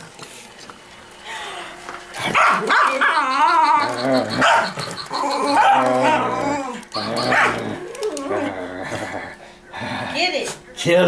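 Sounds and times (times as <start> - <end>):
dog growling and barking: 2.2 - 9.4.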